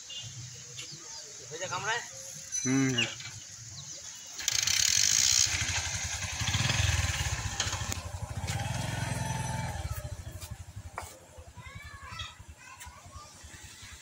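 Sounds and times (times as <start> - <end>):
small engine puttering: 4.4 - 10.9.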